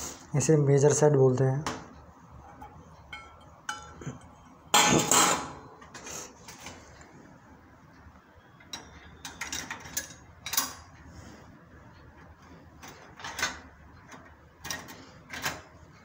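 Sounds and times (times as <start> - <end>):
metal instruments clattering in tray: 3.1 - 5.6.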